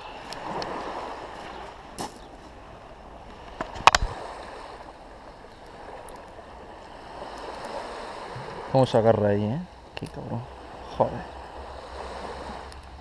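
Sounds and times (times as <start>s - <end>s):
sea lapping on shingle: 0.0s - 8.8s, 11.4s - 13.0s.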